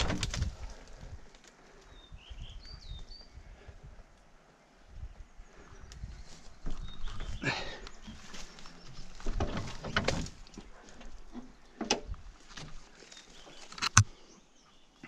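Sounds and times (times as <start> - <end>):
footsteps in dry undergrowth: 5.9 - 14.1
sharp click: 13.8 - 14.1.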